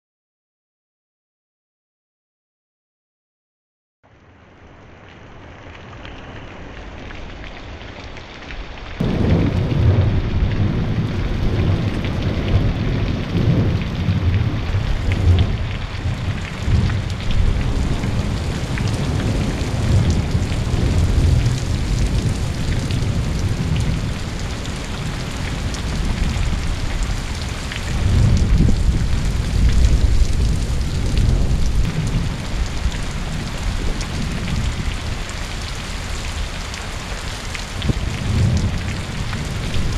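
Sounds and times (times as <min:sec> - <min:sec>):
heavy rain falling: 0:04.1 - 0:39.9
rolling thunder: 0:09.0 - 0:36.5, 0:37.7 - 0:39.9.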